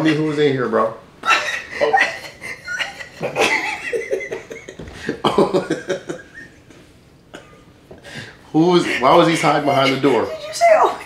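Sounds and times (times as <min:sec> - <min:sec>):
man and woman laughing: 0:01.2 - 0:06.9, 0:08.6 - 0:10.9.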